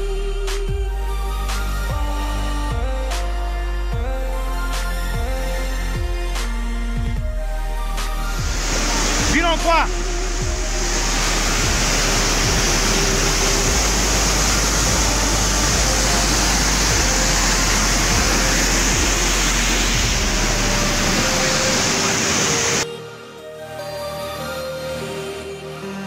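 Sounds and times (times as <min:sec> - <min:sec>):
waterfall rushing over rock: 0:08.0 - 0:22.8.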